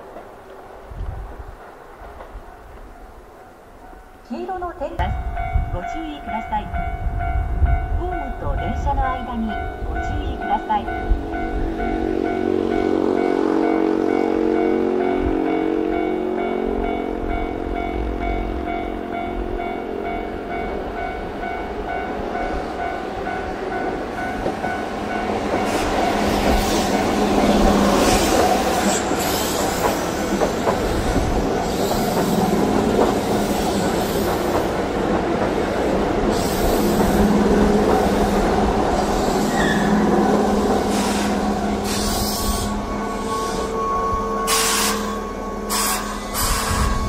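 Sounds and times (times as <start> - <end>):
train wheels clattering on rails: 0.0 - 3.0, 21.4 - 42.7
steady tones: 2.4 - 47.0.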